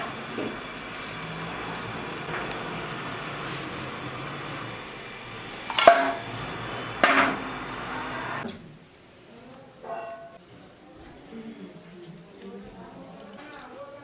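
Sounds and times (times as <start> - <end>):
steady hiss: 0.0 - 9.4
metal cookware knocks ringing: 5.7 - 6.3, 7.0 - 7.4.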